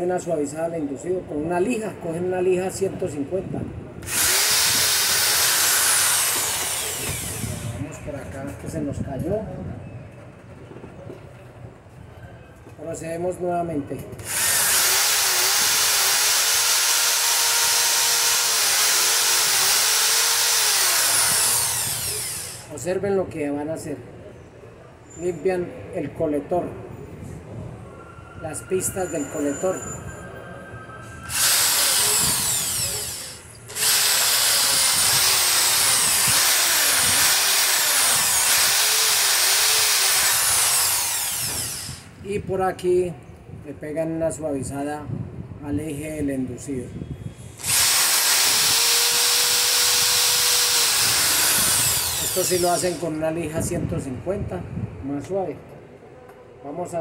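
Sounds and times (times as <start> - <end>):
electric drill running: 4.0 - 7.8, 14.2 - 22.7, 31.3 - 42.1, 47.6 - 53.0
sandpaper hissing on shaft: 4.1 - 7.8, 18.4 - 22.7, 31.3 - 42.1, 47.5 - 53.1.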